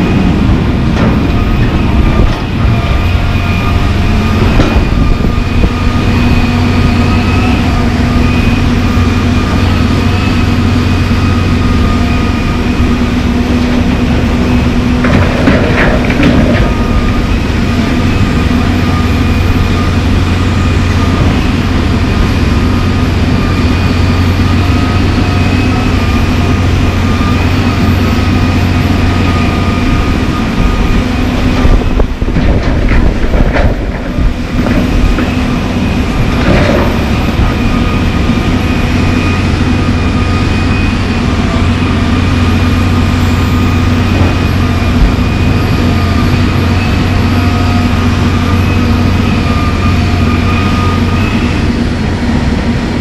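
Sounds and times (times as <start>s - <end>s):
excavator diesel engine running: 0.0s - 53.0s.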